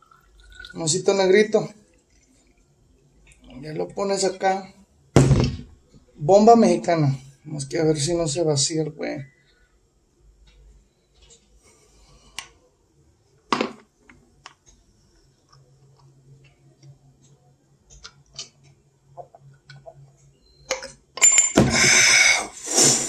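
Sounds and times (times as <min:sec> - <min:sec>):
person gulping: 0:00.4 - 0:00.8
glass clinking: 0:20.7 - 0:22.4.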